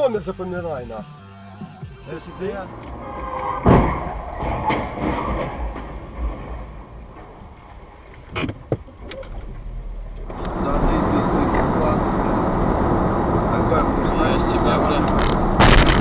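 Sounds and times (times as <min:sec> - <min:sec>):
low rumble of car: 0:01.8 - 0:16.0
car crash: 0:02.2 - 0:16.0
clunks and rattling: 0:02.6 - 0:10.6
sharp knocks: 0:03.6 - 0:06.4.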